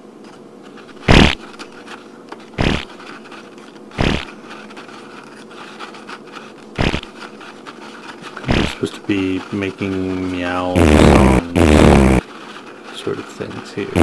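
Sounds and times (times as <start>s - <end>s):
faint room hum: 0.0s - 14.0s
fart sound effects: 1.0s - 1.4s, 2.6s - 2.9s, 4.0s - 4.3s, 6.8s - 7.1s, 8.5s - 8.8s, 10.7s - 12.2s.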